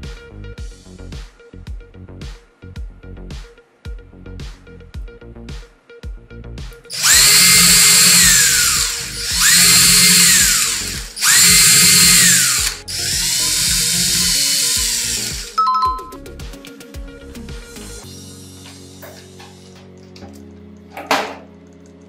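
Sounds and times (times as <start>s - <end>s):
power drill boring into wood: 6.9s - 15.6s.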